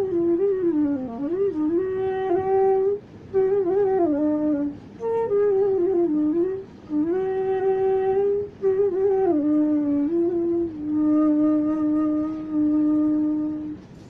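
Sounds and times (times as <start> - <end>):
bamboo flute melody: 0.0 - 14.0.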